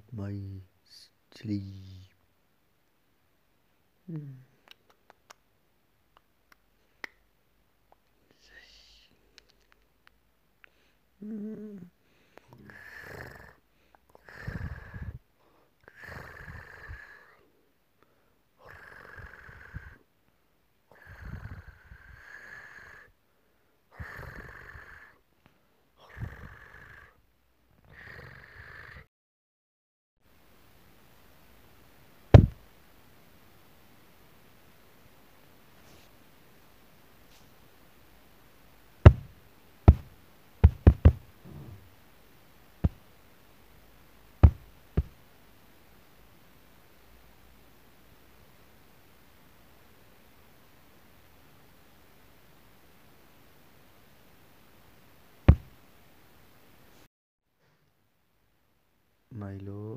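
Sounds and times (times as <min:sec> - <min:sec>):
cat snoring: 0:11.2 - 0:11.9, 0:12.6 - 0:13.6, 0:14.2 - 0:15.2, 0:15.8 - 0:17.4, 0:18.6 - 0:20.0, 0:20.9 - 0:23.1, 0:23.9 - 0:25.2, 0:26.0 - 0:27.2, 0:27.9 - 0:29.1, 0:44.4 - 0:45.1
hands knocking on railing: 0:32.4 - 0:32.6, 0:39.1 - 0:39.3, 0:39.9 - 0:41.2, 0:44.4 - 0:45.2, 0:55.5 - 0:55.7.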